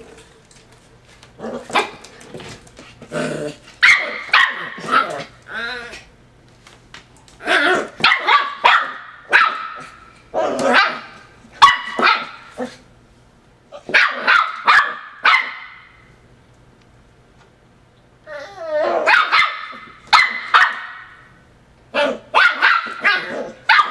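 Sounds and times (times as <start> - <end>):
puppy barking: 3.8 - 5.3, 8.0 - 12.7, 13.8 - 15.9, 18.9 - 21.2, 21.9 - 23.9.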